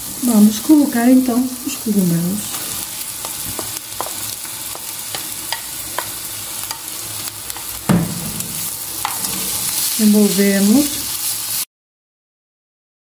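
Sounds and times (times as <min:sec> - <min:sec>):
mushrooms sizzling in frying pan: 0:00.0 - 0:11.7
loud knock: 0:07.9 - 0:08.8.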